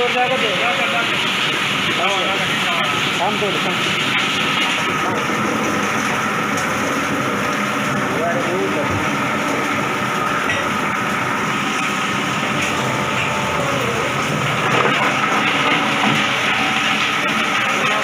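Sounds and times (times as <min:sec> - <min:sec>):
grinding machine running: 0:00.0 - 0:18.0.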